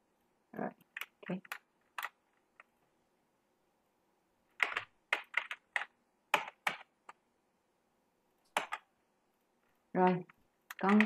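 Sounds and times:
computer keyboard clicking: 4.6s - 6.9s, 8.5s - 8.9s, 10.1s - 11.0s.

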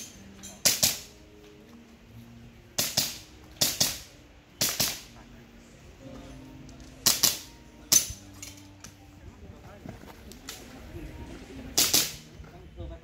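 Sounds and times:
handgun shots: 0.6s - 1.1s, 2.8s - 5.1s, 7.0s - 8.2s, 11.8s - 12.2s.

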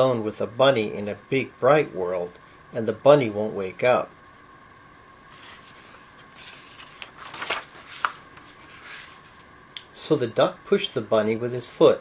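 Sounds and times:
book pages turning: 5.3s - 9.5s.

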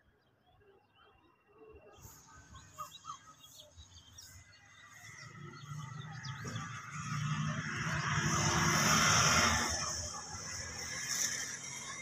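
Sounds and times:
small birds chirping: 0.0s - 12.0s
train rumbling: 4.9s - 12.0s.

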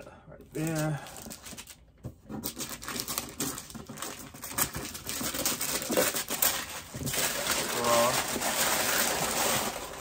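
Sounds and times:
wrapping paper crinkling: 2.4s - 10.0s.

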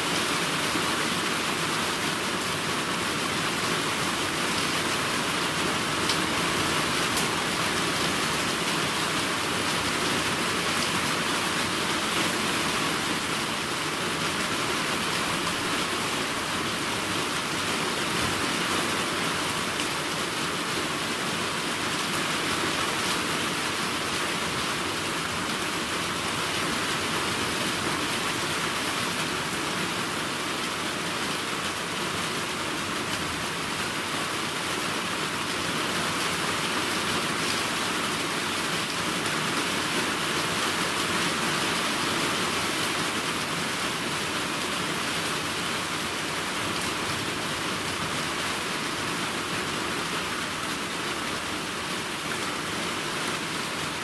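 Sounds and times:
steady rain hiss: 0.0s - 54.0s.

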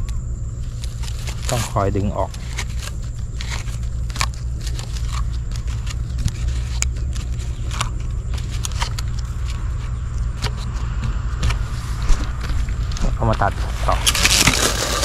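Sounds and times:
electric trimmer motor humming: 14.0s - 15.0s.

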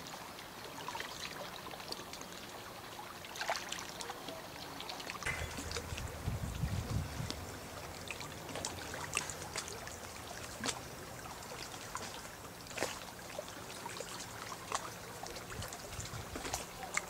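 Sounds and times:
water trickling and lapping: 0.0s - 17.0s
faint low hum: 5.3s - 17.0s.

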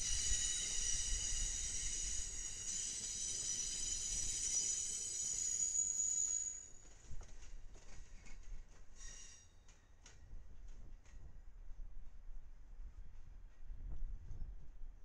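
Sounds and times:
train wheels squealing: 0.0s - 7.3s, 8.9s - 10.0s
train rumble: 0.0s - 11.6s.

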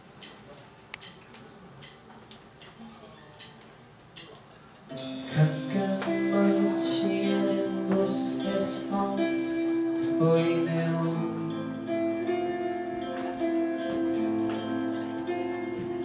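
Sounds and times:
cymbal washes: 4.9s - 10.2s
guitar chords: 4.9s - 16.0s
live band playing: 4.9s - 16.0s.

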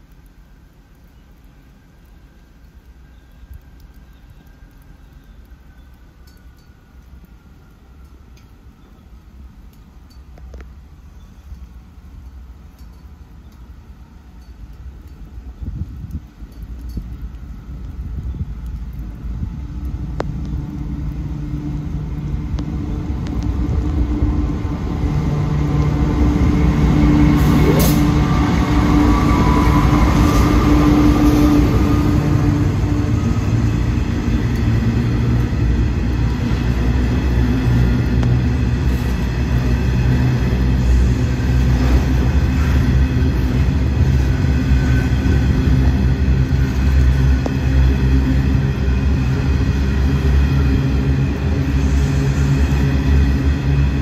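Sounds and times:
diesel locomotive engine drone: 0.0s - 54.0s
wheels rumbling on rail: 0.0s - 54.0s.

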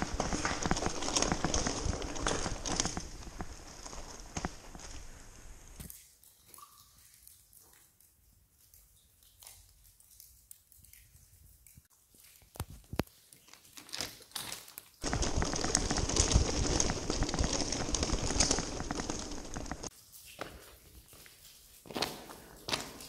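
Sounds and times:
bicycle rattling over rubble: 0.0s - 5.8s, 13.8s - 19.9s
footsteps on stony floor: 0.0s - 5.9s, 15.0s - 23.0s.

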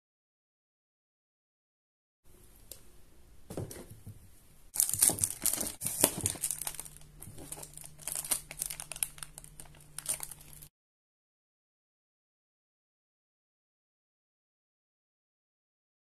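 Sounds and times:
plastic bag crinkling: 4.8s - 10.7s.

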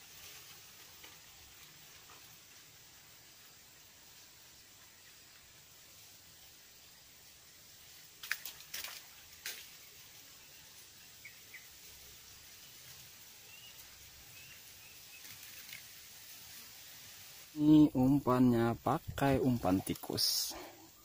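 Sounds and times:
outdoor hiss: 0.0s - 21.0s
bird chirps: 10.4s - 11.8s, 13.4s - 15.8s.

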